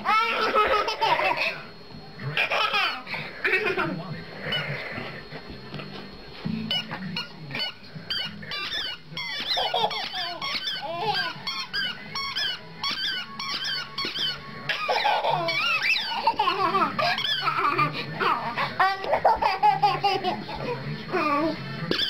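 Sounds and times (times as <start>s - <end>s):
baby laughing: 0.0s - 1.6s, 2.4s - 3.8s, 8.6s - 11.4s, 13.5s - 22.0s
squeaky toy squeaking: 6.7s - 17.8s.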